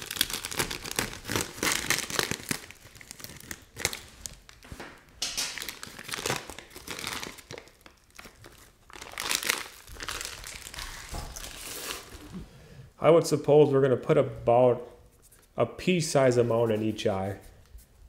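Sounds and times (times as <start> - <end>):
wrapping crinkling: 0.0 - 12.4.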